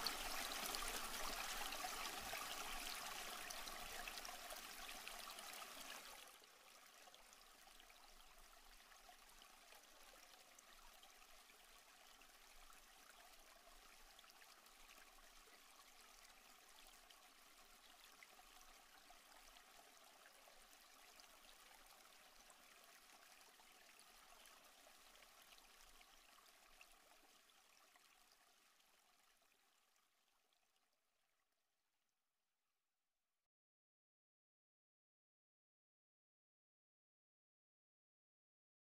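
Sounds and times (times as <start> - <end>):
flowing stream water: 0.0 - 30.6.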